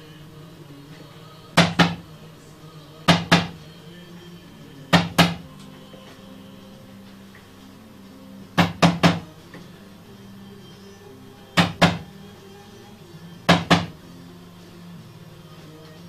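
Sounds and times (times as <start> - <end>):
wooden mallet knocking on wood: 1.6 - 2.0, 3.1 - 3.6, 8.6 - 9.3, 11.6 - 12.1, 13.5 - 14.0.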